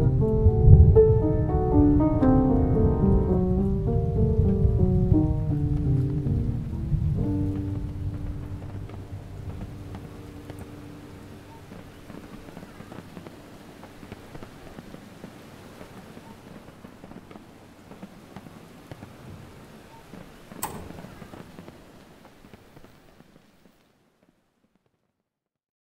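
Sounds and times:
held string chord: 0:00.0 - 0:11.5
crackling rain-like noise: 0:00.0 - 0:25.3
sharp crack: 0:02.2 - 0:19.1, 0:20.2 - 0:23.2
scattered clicks: 0:20.6 - 0:21.7.

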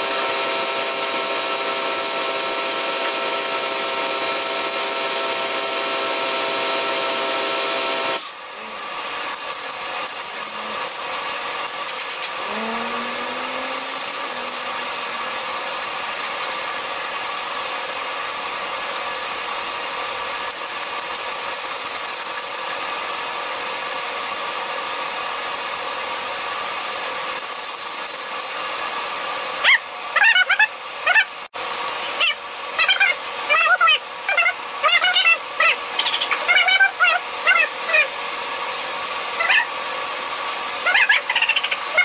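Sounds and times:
motor drone with hum: 0:00.0 - 0:17.2
paint spraying hiss: 0:09.3 - 0:11.0, 0:11.6 - 0:12.4, 0:13.8 - 0:15.0.

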